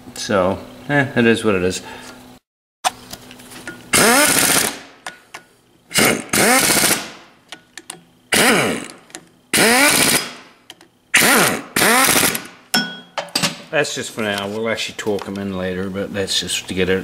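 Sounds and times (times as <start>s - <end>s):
impact wrench hammering bolts: 3.7s - 13.7s.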